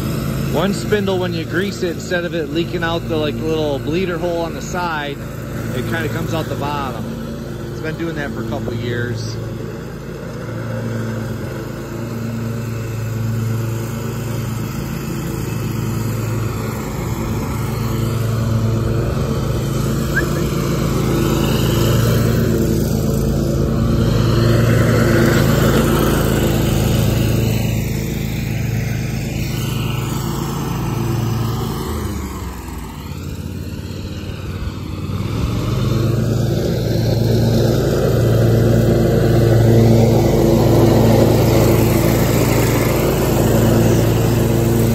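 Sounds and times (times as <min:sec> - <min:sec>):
lawn mower engine running: 0:00.0 - 0:44.9
mower deck cutting grass: 0:00.0 - 0:44.9.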